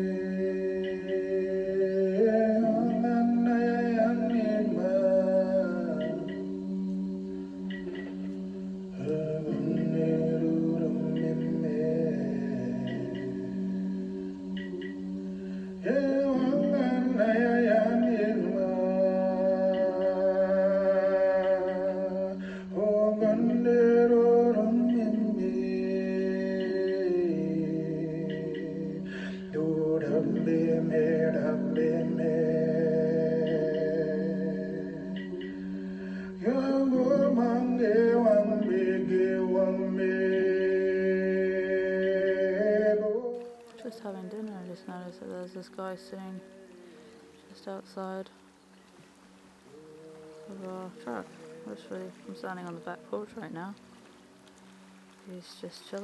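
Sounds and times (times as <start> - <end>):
person singing: 0.0 - 48.3, 49.7 - 54.0.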